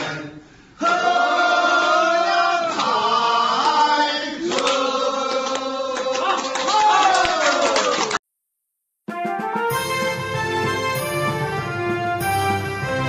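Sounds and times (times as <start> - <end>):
group singing in unison: 0.0 - 6.4
hand claps: 4.5 - 8.2.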